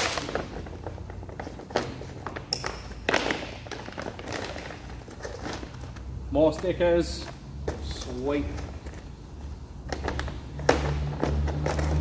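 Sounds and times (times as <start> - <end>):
plastic wrap crinkling and tearing: 0.0 - 0.6.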